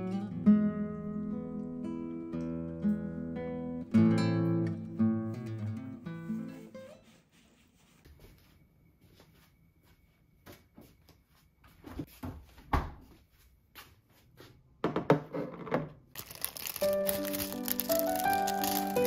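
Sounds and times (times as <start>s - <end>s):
background music: 16.3s - 19.0s.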